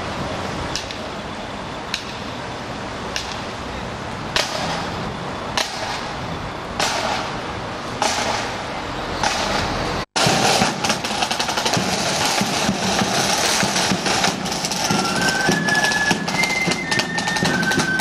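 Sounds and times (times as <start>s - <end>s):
marching side drums: 8.0s - 8.6s, 9.2s - 18.0s.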